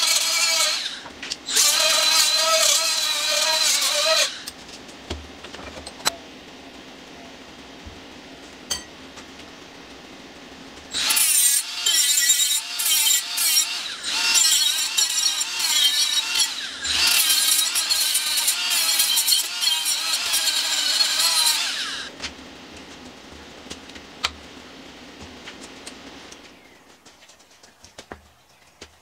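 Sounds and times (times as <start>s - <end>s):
rotary tool grinding metal: 0.0s - 4.6s, 10.9s - 22.1s.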